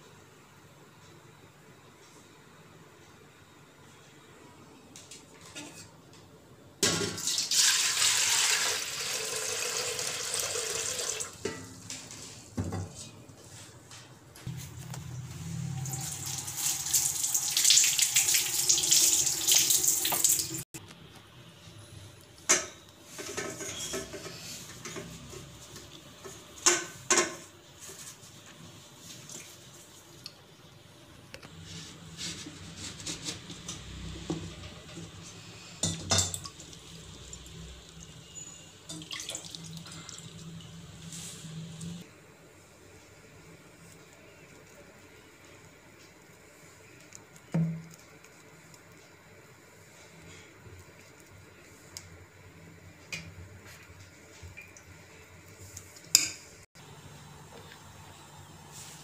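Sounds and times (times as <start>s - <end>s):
tap water splashing into sink: 19.5s - 20.5s
water dripping: 36.3s - 40.8s, 54.4s - 55.0s.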